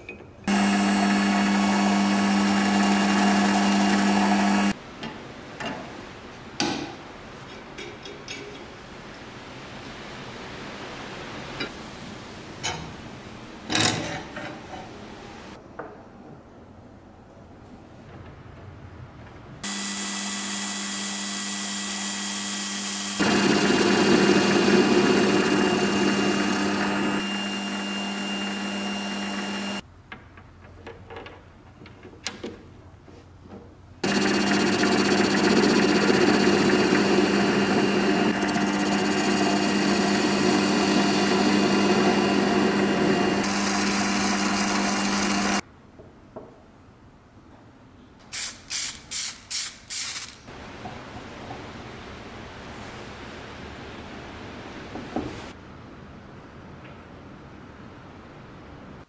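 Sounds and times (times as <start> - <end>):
power tool motor running: 0.5 - 4.8, 19.6 - 29.8, 34.0 - 45.6.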